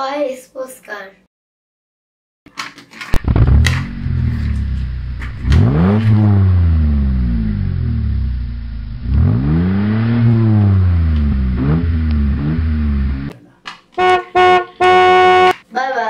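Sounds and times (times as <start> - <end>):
car engine idling and revving: 3.2 - 13.3, 14.0 - 15.6.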